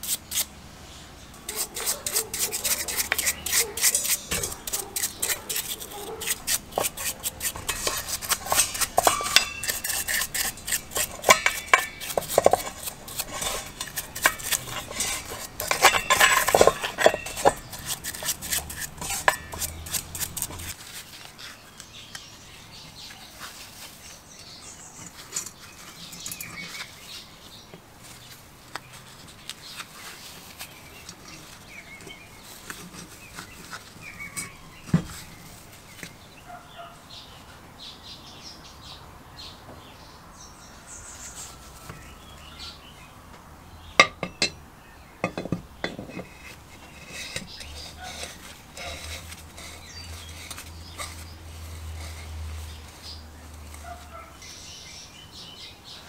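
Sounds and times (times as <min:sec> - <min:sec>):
brush scraping metal parts: 0:00.0 - 0:00.6, 0:01.3 - 0:27.3, 0:28.0 - 0:36.2, 0:44.0 - 0:44.6, 0:45.2 - 0:55.6
faint handling sounds: 0:00.3 - 0:36.2, 0:45.2 - 0:54.8
metal parts clinking against bowl: 0:01.5 - 0:20.8.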